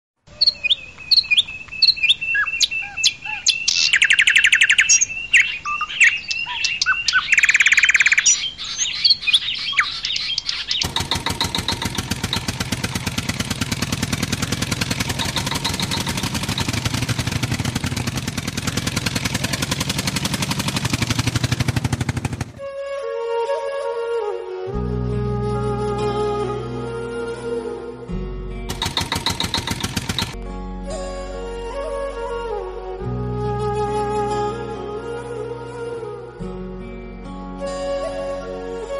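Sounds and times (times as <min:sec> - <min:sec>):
birds chirping and trilling: 0:00.3 - 0:19.3, 0:28.7 - 0:30.4
rapidly pulsing mechanical noise: 0:10.8 - 0:22.6, 0:28.7 - 0:30.4
soft music: 0:22.6 - 0:28.7, 0:30.4 - 0:38.9.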